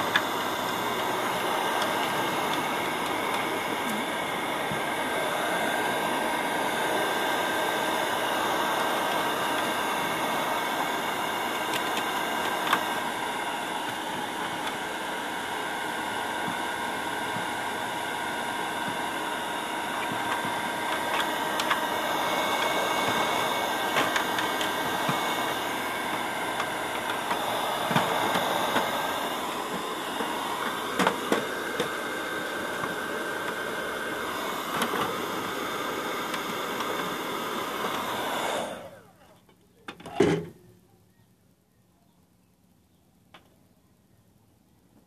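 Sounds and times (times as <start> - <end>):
electric air blower running: 0.0 - 39.3.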